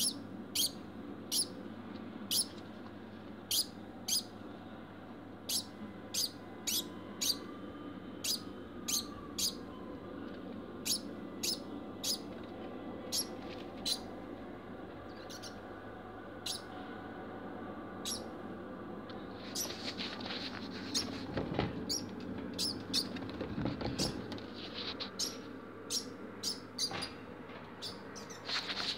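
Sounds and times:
rustling: 19.4s - 21.4s, 28.4s - 28.9s.

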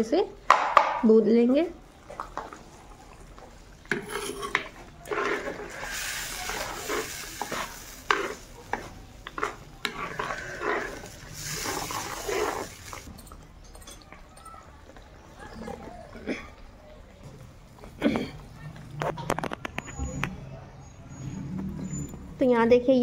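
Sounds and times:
paste sizzling in hot oil: 3.9s - 13.1s
spoon scraping earthenware pot: 3.9s - 13.3s.

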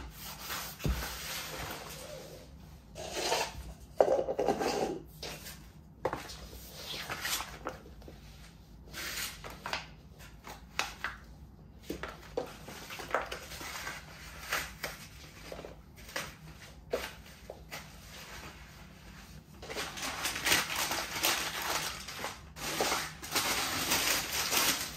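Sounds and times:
paper and cardboard crumpling: 12.0s - 24.9s.

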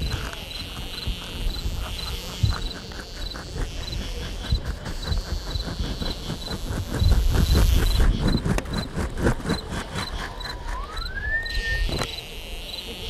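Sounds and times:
cricket-like chirp: 0.0s - 8.9s, 9.5s - 13.0s
quick even ticking: 0.0s - 11.6s.

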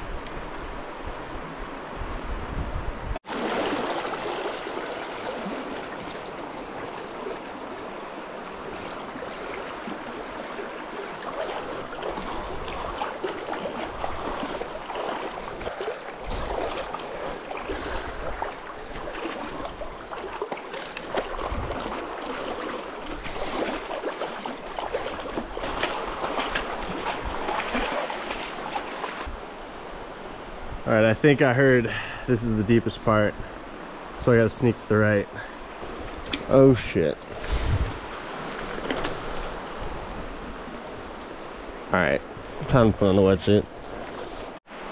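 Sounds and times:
splashes from wading: 3.2s - 29.3s, 43.7s - 44.6s
river water rushing: 3.2s - 29.8s.

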